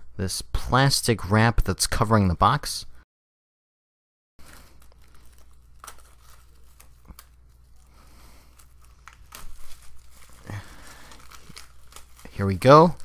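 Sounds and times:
plastic wrap crinkling and tearing: 4.4 - 13.0.

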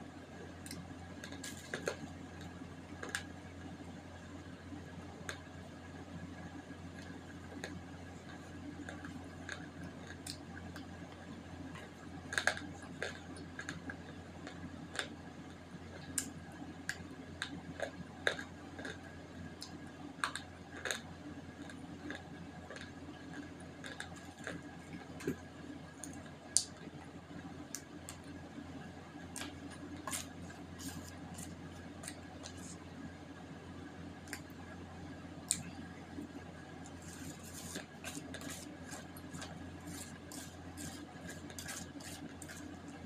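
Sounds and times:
steady low hum: 0.0 - 43.0
sticky chewing and crunching: 6.9 - 15.2, 15.9 - 28.4, 29.2 - 32.9, 35.4 - 43.0.

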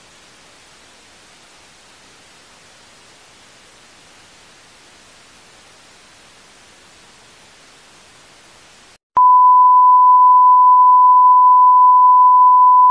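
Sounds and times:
faint static hiss: 0.0 - 9.0.

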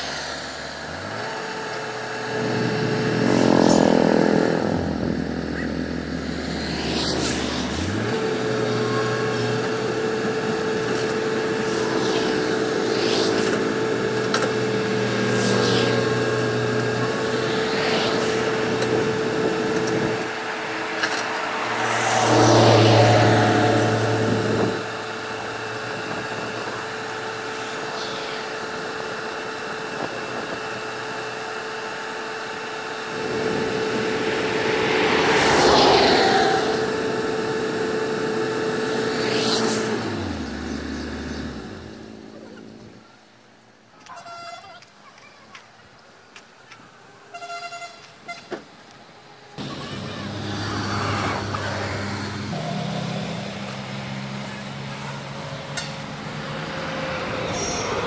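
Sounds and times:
excavator diesel engine running: 0.0 - 43.2, 49.3 - 58.0
steady whine: 0.0 - 44.0
vehicles passing: 0.0 - 58.0.

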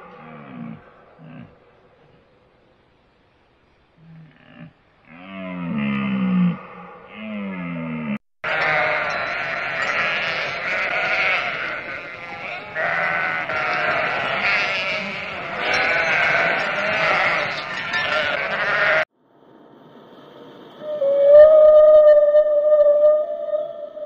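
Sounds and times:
flock of sheep bleating: 8.4 - 19.1.

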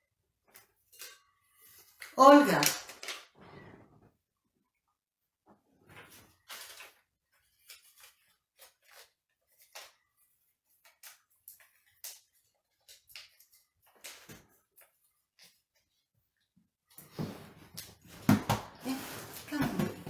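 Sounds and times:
paper crinkling: 6.1 - 15.9.

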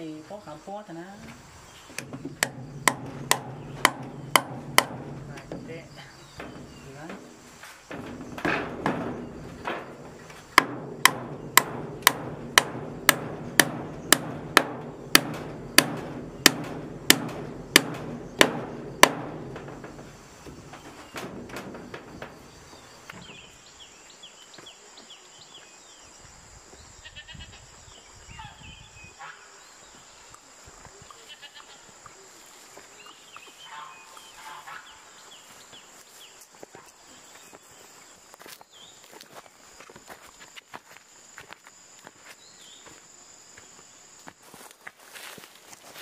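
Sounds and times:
hammer striking wood: 2.0 - 5.7, 7.9 - 22.5.

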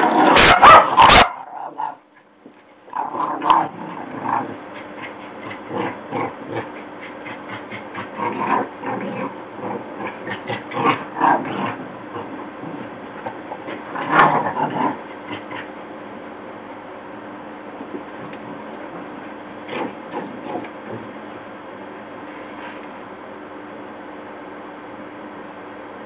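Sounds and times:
dogs barking: 0.0 - 2.0
dogs growling in play: 0.0 - 2.0, 2.9 - 16.0, 17.8 - 21.4.

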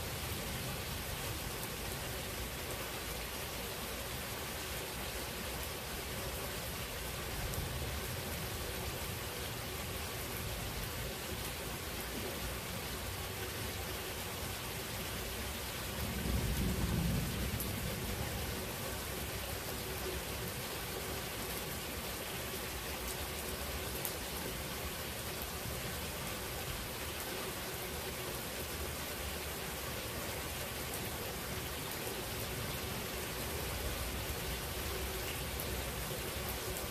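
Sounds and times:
steady rain: 0.0 - 36.9
thunder rumble: 15.9 - 18.8.

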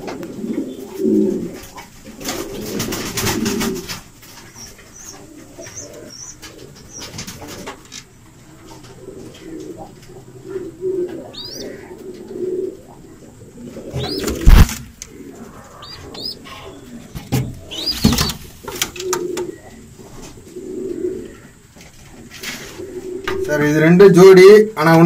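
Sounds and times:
pigeons cooing: 0.0 - 23.8
high chirps: 4.5 - 7.2, 15.7 - 18.4
loud knocks: 14.0 - 14.9.

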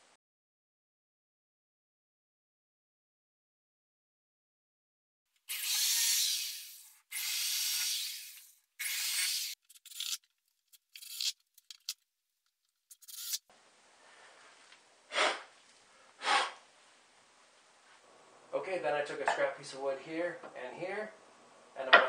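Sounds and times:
cordless drill driving screws: 5.5 - 10.2, 12.9 - 13.4.

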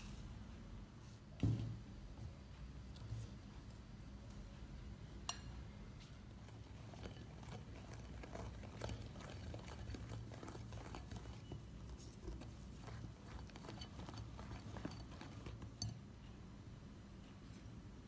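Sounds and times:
low steady hum: 0.0 - 18.0
whisk tapping glass bowl: 6.4 - 16.0.

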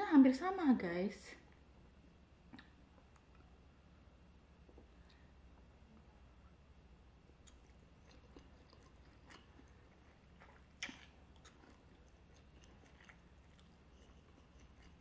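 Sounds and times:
wet mouth clicks: 2.5 - 3.5, 10.5 - 11.8
faint chewing of noodles: 7.2 - 15.0.

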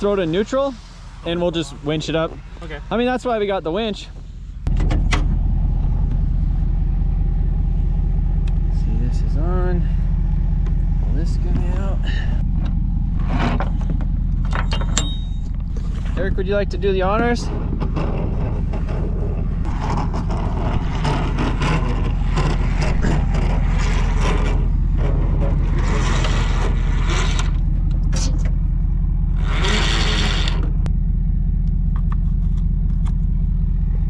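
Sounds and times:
vehicle engine idling: 0.0 - 34.0
winch clicks and scraping: 17.4 - 28.6, 29.3 - 30.9.

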